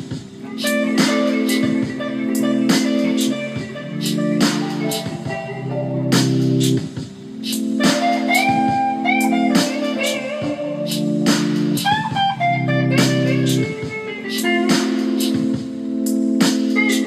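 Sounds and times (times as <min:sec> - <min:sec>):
steady drum beat: 0:00.0 - 0:17.0
sustained backing chords: 0:00.0 - 0:17.0
electric guitar blues licks: 0:00.4 - 0:06.3, 0:07.6 - 0:15.0.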